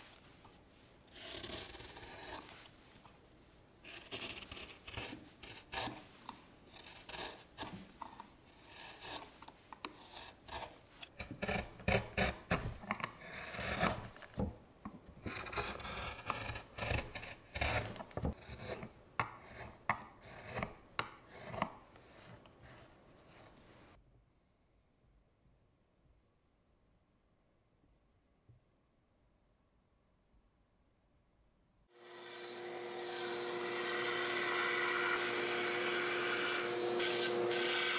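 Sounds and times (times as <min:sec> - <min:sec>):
carving gouge scraping wood: 0:01.1 - 0:02.7, 0:03.8 - 0:14.6, 0:15.2 - 0:23.6.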